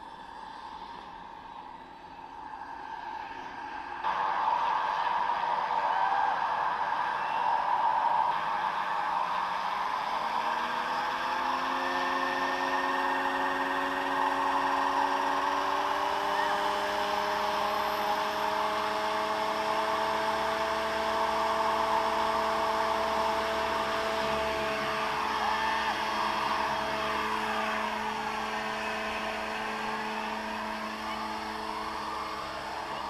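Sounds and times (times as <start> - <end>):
rotor noise rush: 2.4 - 33.0
model helicopter motor whine: 10.2 - 33.0.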